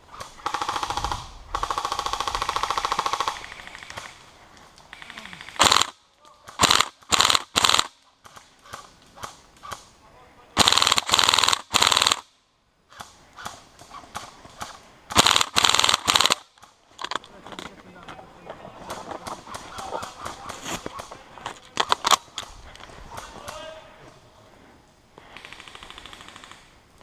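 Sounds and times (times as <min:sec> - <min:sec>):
airsoft rifle automatic fire: 0:00.2 - 0:04.2, 0:04.9 - 0:09.4, 0:10.6 - 0:12.3, 0:14.1 - 0:16.6, 0:25.3 - 0:26.8.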